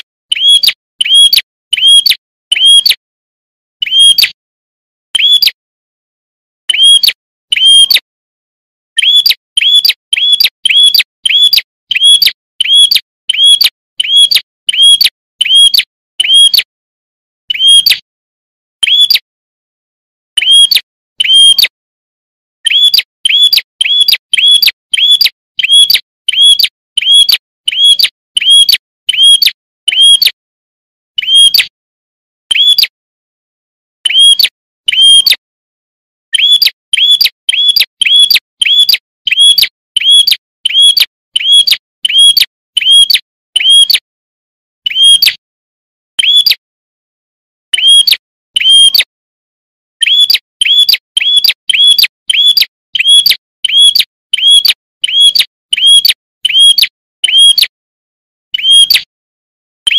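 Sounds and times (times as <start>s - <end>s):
bird high chirps: 0.3s - 3.0s, 3.8s - 4.4s, 5.1s - 5.6s, 6.6s - 8.1s, 8.9s - 16.7s, 17.5s - 18.1s, 18.8s - 19.3s, 20.4s - 21.8s, 22.6s - 30.4s, 31.2s - 31.7s, 32.5s - 33.0s, 34.0s - 35.4s, 36.3s - 44.0s, 44.8s - 45.4s, 46.2s - 46.6s, 47.7s - 49.1s, 50.0s - 57.6s, 58.5s - 59.1s.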